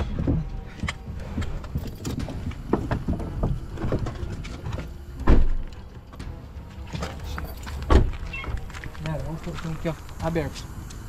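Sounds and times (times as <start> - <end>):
loud thump: 5.2 - 5.7.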